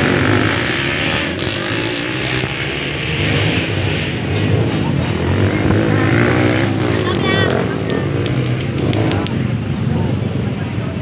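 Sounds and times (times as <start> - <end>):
dirt bike engines running: 0.0 - 11.0
spectators din: 4.1 - 11.0.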